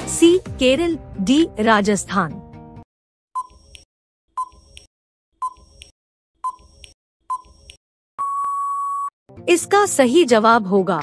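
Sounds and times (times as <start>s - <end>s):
long steady beep: 8.2s - 9.1s.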